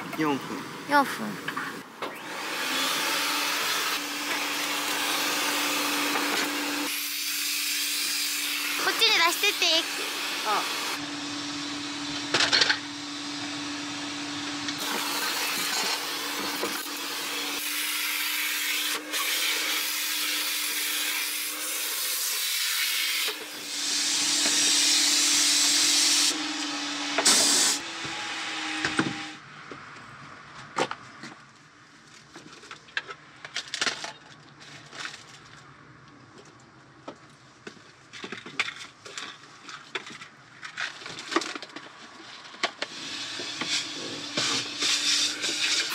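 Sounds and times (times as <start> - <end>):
car-wash vacuum running: 8.0 - 20.6, 23.3 - 29.4, 42.8 - 45.9.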